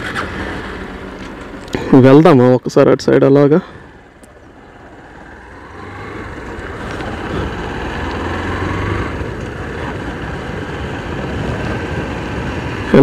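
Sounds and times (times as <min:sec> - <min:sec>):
motorcycle engine running: 0:03.8 - 0:13.0.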